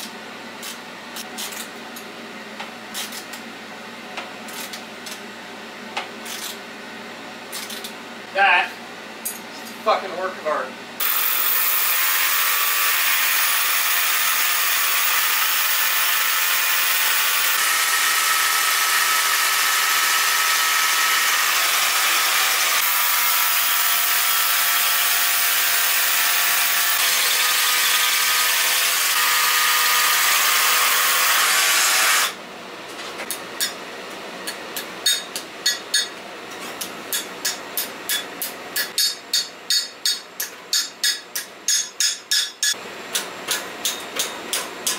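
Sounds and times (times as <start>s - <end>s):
handheld power tool running: 11.0s - 32.4s.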